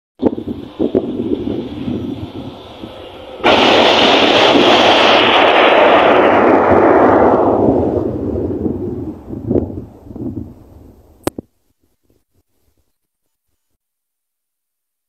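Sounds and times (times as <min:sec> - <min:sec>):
heavy rumbling din: 0:00.2 - 0:11.2
train wagons crashing: 0:02.9 - 0:06.2.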